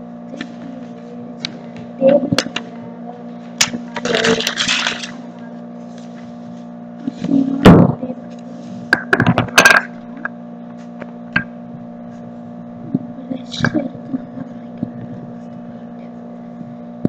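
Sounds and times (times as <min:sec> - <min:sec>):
steady low hum: 0:00.0 - 0:17.0
paper rustling: 0:04.0 - 0:05.2.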